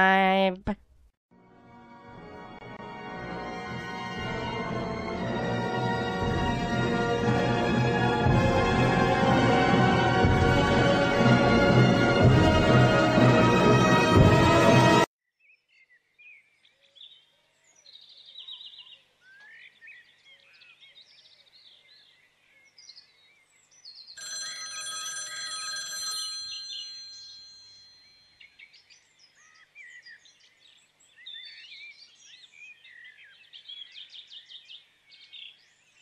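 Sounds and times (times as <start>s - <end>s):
small birds chirping: 15.4s - 24.2s, 28.0s - 36.0s
bell-like ringing: 24.2s - 28.4s.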